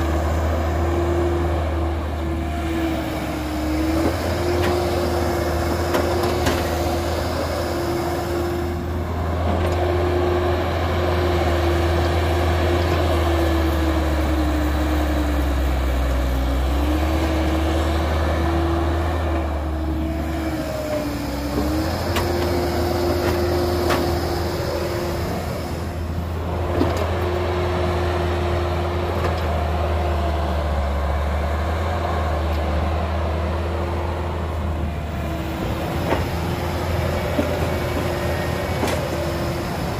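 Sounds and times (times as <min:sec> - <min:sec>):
excavator diesel engine: 0:00.0 - 0:39.9
hydraulic whine: 0:34.0 - 0:39.9.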